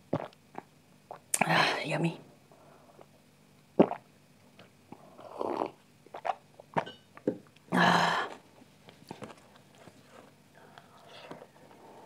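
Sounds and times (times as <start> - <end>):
person gulping from a glass: 0.2 - 1.5, 3.8 - 8.4.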